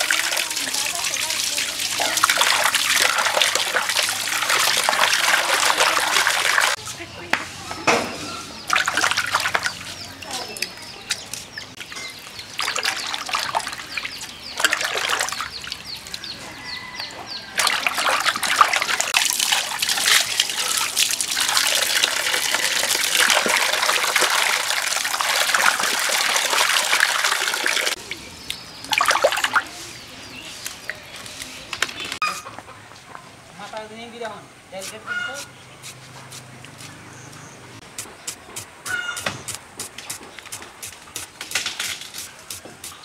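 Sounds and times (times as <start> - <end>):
water pouring into a bowl: 0.0 - 6.8, 11.8 - 16.2, 17.6 - 28.2
water splashing in a bowl: 0.0 - 6.8, 8.7 - 16.3, 17.5 - 29.9.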